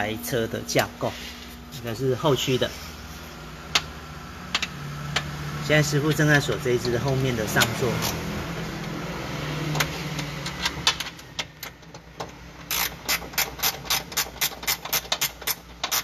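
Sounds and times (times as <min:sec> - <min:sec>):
steady low hum: 0:00.0 - 0:13.9
ratchet wrench clicking: 0:09.7 - 0:16.0.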